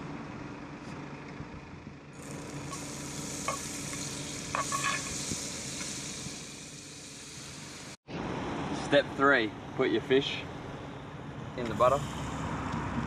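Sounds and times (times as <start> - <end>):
butter sizzling in a frying pan: 2.7 - 7.9.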